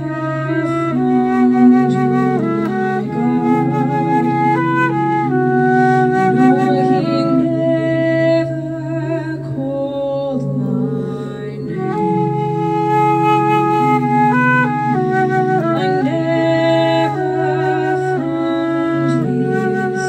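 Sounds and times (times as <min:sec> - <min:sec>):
flute playing long held notes: 0:00.0 - 0:20.0.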